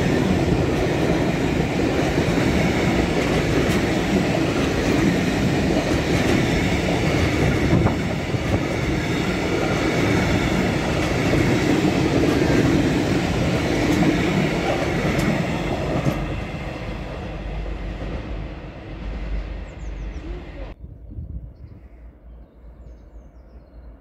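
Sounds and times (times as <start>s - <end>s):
freight train wheels clattering: 0.0s - 20.2s.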